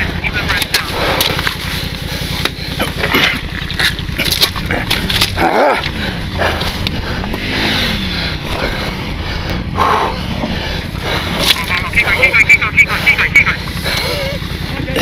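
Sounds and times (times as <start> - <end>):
clicks and rustles: 0.4 - 7.4.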